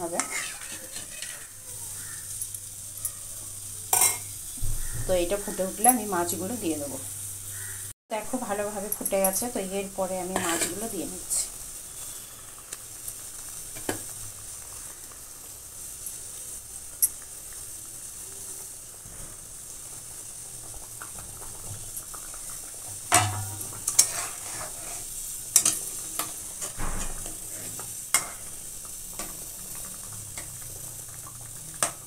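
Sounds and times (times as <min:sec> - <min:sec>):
spatula scraping and clinking pan: 0:00.0 - 0:01.5, 0:03.9 - 0:04.3, 0:10.4 - 0:10.8, 0:23.1 - 0:28.5
gravy bubbling and sizzling: 0:00.0 - 0:32.0.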